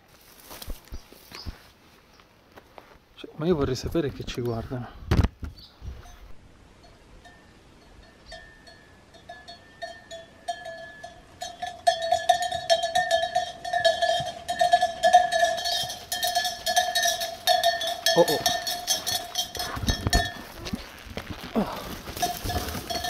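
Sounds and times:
livestock bells clanking: 0:06.0 - 0:23.0.

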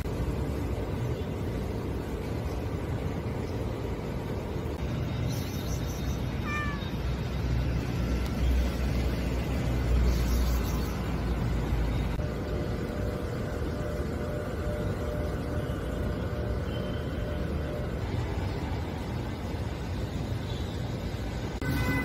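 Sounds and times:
cat meowing: 0:06.4 - 0:07.0.

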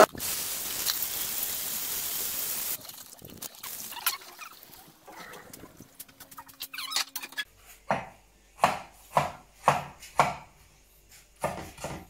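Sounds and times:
cleaver chopping on wooden board: 0:07.9 - 0:10.5, 0:11.4 - 0:12.0.

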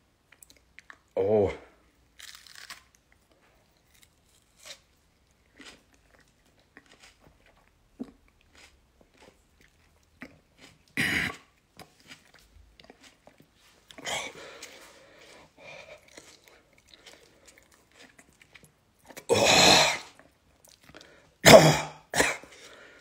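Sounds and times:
person chewing crunchy food: 0:02.1 - 0:21.4.

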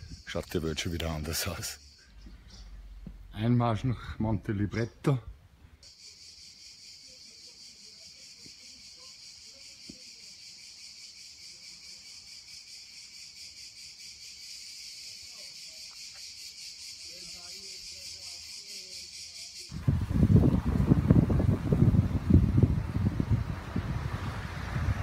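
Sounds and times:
insects chirring: 0:00.0 - 0:03.0, 0:05.8 - 0:19.8.

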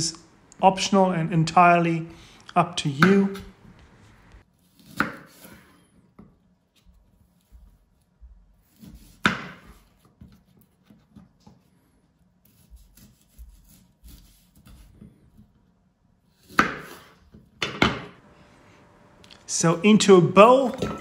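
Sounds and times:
knife chopping on wooden board: 0:04.8 - 0:05.6, 0:08.6 - 0:11.3, 0:16.4 - 0:18.0.

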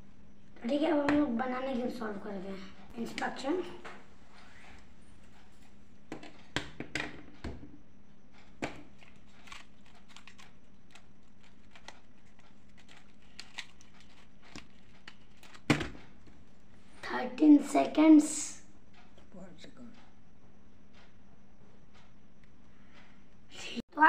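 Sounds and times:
plastic puzzle pieces clicking: 0:09.0 - 0:15.9.

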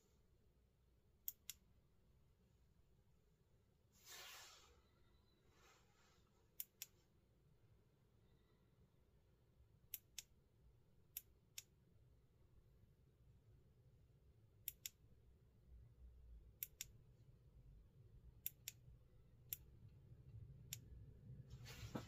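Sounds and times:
faint low hum: 0:04.6 - 0:22.0.

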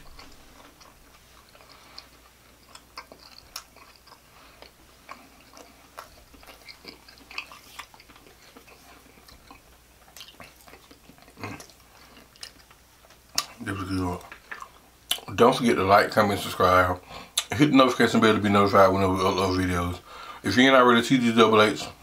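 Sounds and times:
wet chewing and mouth smacks: 0:00.0 - 0:15.3.

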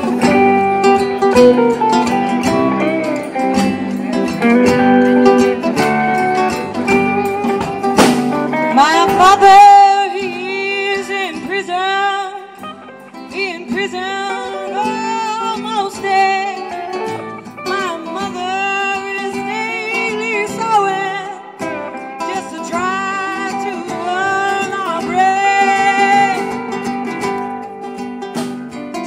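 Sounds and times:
upright bass: 0:00.0 - 0:10.6
acoustic guitar: 0:00.0 - 0:29.0
electric guitar: 0:00.0 - 0:29.0
woman singing into a microphone: 0:08.6 - 0:27.4.

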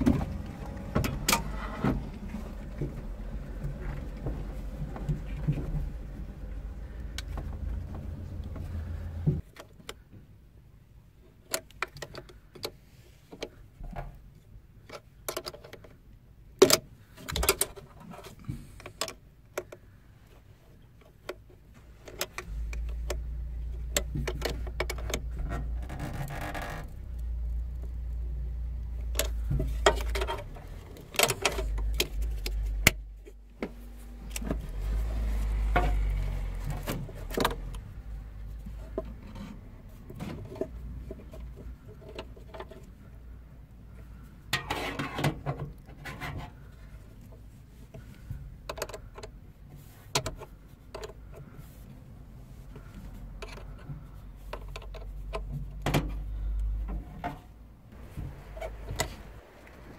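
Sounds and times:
steady low rumble: 0:00.0 - 0:09.4, 0:57.6 - 0:59.9.

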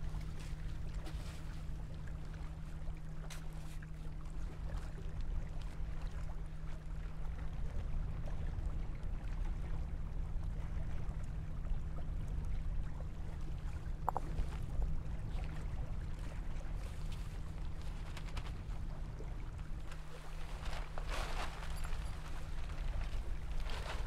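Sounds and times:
water along rocky shore: 0:00.0 - 0:24.0
wind: 0:00.0 - 0:24.0
tarp rustling and tapping: 0:00.4 - 0:01.6, 0:16.8 - 0:18.9, 0:19.7 - 0:24.0.

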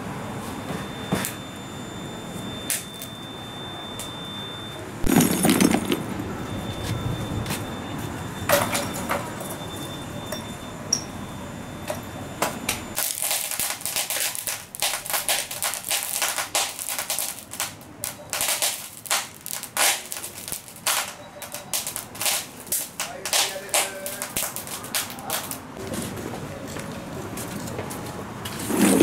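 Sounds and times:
charcoal crackling and popping: 0:13.0 - 0:25.7.

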